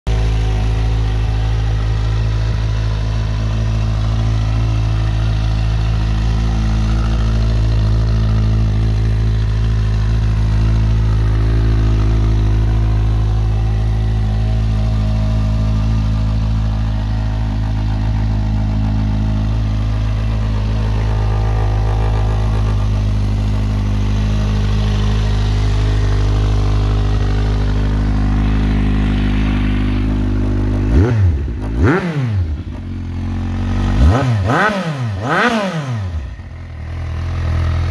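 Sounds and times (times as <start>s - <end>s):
engine revving: 0.1s - 37.9s
motorcycle engine idling: 0.1s - 37.9s.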